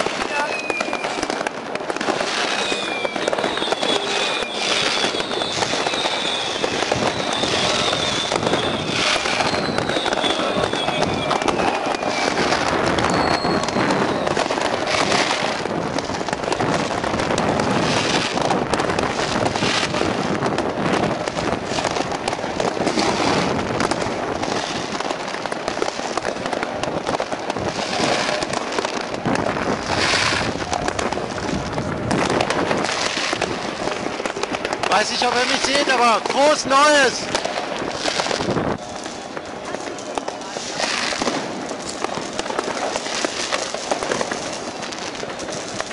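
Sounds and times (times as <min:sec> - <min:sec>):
fireworks crackling: 0:00.0 - 0:45.9.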